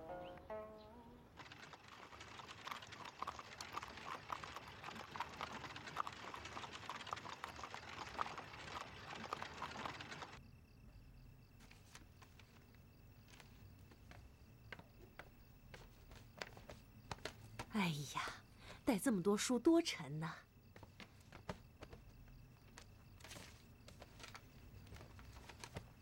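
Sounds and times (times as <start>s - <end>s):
hooves clip-clopping on pavement: 1.4s - 10.4s.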